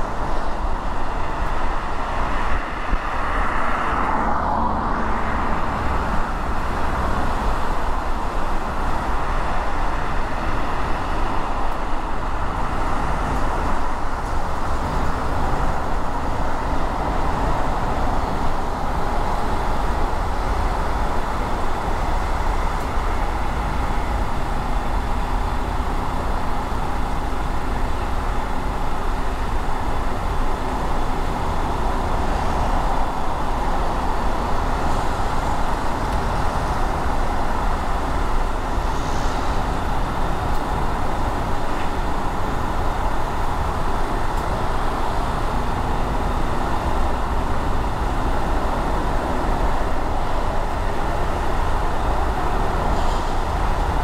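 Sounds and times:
car tyre and engine noise: 0:00.0 - 0:54.0.

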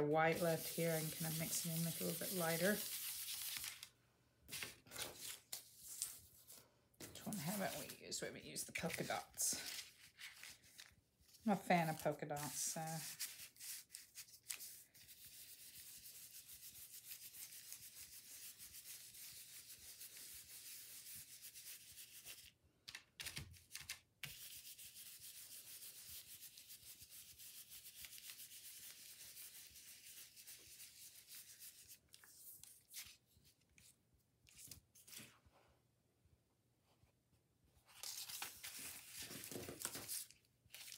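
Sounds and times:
stencil brush scrubbing on paper: 0:00.0 - 0:03.7, 0:07.2 - 0:08.0, 0:11.5 - 0:22.4, 0:24.2 - 0:32.0.

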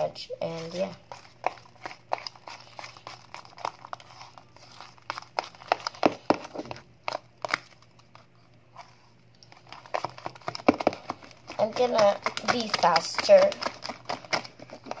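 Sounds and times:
slime stirred in plastic cup: 0:00.0 - 0:15.0
sticky clicks and crackles: 0:09.4 - 0:15.0.

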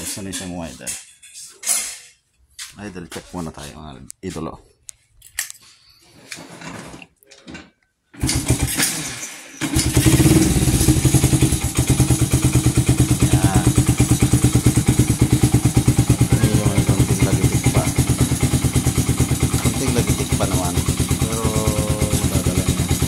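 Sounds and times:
motorcycle engine starting and idling: 0:08.1 - 0:23.0.

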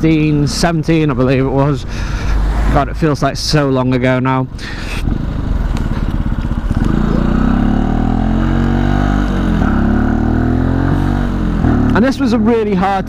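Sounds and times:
motorcycle engine revving: 0:04.6 - 0:13.0.

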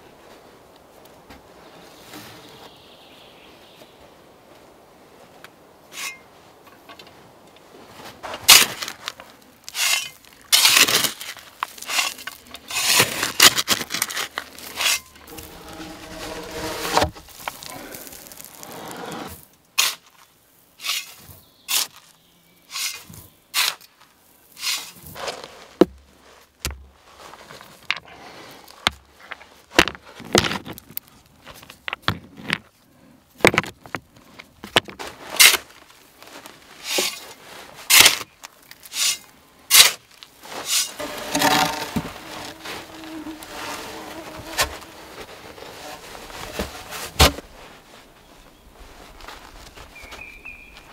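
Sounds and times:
shovel scraping in sand: 0:05.9 - 0:06.3, 0:08.0 - 0:20.2, 0:20.8 - 0:22.1, 0:22.7 - 0:26.4, 0:35.0 - 0:50.9
rush of sand poured: 0:09.7 - 0:19.5, 0:38.9 - 0:48.1.

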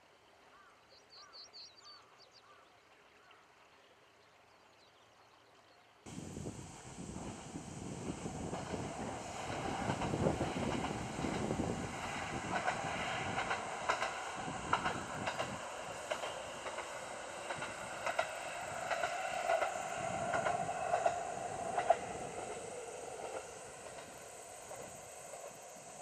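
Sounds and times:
distant diesel railcar hum: 0:06.1 - 0:26.0
wheels clicking over rail joints: 0:08.4 - 0:26.0.

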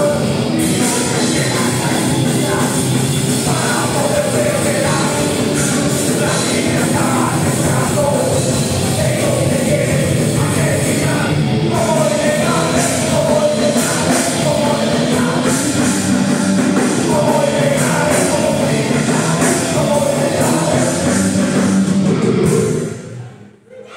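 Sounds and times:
person singing and shouting: 0:00.0 - 0:15.8
drums with cymbal hits: 0:00.0 - 0:23.2
distorted electric guitars: 0:00.0 - 0:23.3.

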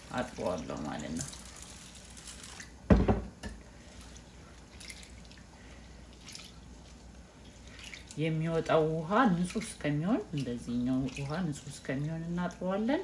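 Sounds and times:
thump: 0:02.9 - 0:03.3
water splashing and dripping: 0:03.9 - 0:05.5, 0:06.1 - 0:12.1.

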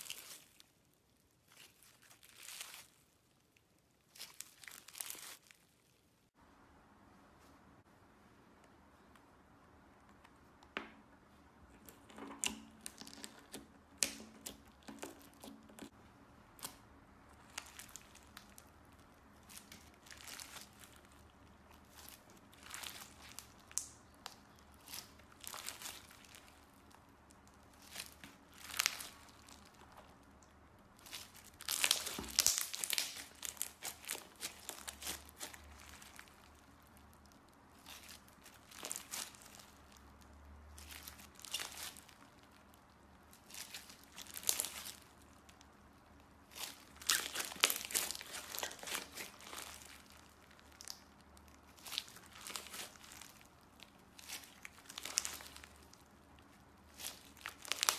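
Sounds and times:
slime squished by hand: 0:11.7 - 0:57.9.

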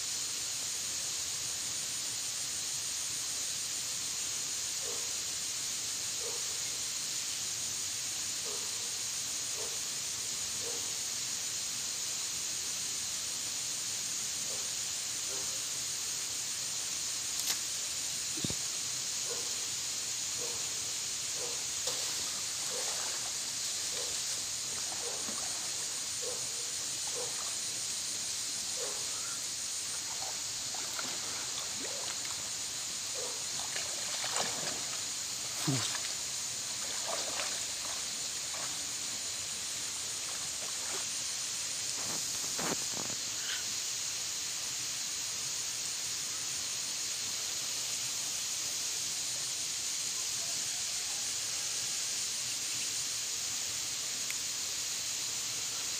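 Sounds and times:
high-pitched hiss: 0:00.0 - 0:55.9
hand sloshing in muddy water: 0:21.9 - 0:23.4, 0:24.0 - 0:26.0, 0:30.0 - 0:32.5, 0:33.5 - 0:39.0.

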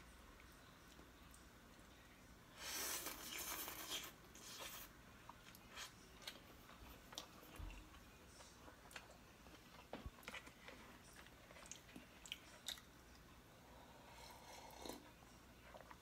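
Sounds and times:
noodles slurped from a bowl: 0:02.6 - 0:04.9.

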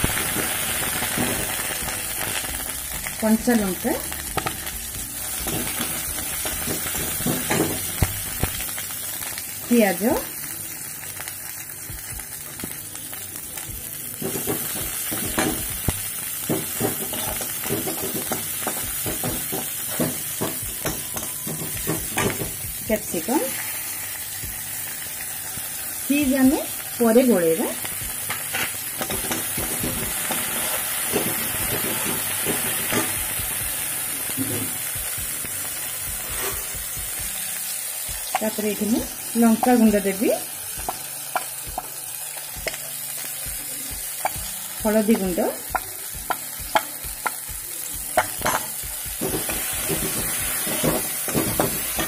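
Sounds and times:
vegetables sizzling in hot oil: 0:00.0 - 0:52.0
metal spatula scraping a pan: 0:36.2 - 0:36.8.

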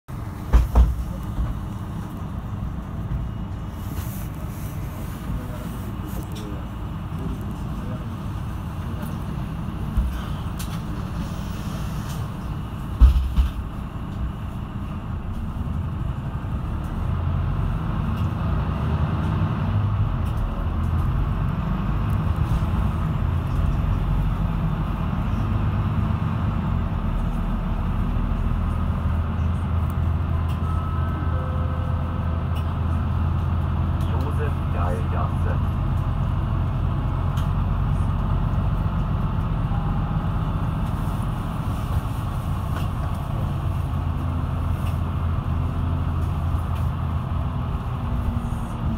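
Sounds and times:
bus engine rumbling: 0:00.1 - 0:48.9
thump: 0:00.5 - 0:01.0, 0:13.0 - 0:13.6.

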